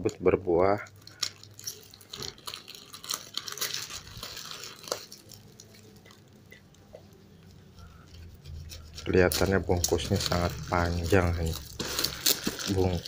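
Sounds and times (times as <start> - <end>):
plastic packaging crinkling: 0.0 - 13.0
knife slitting plastic: 8.7 - 13.0.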